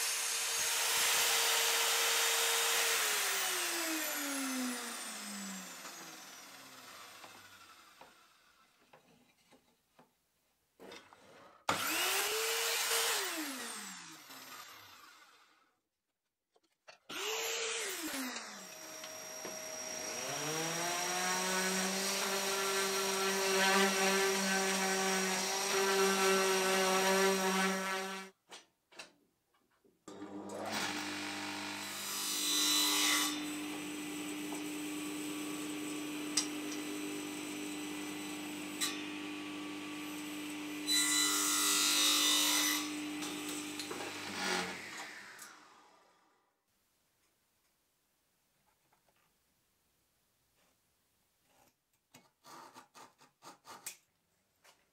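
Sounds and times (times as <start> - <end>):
table saw cutting wood: 0.0 - 8.6, 11.6 - 15.6, 17.1 - 28.3, 30.1 - 46.2.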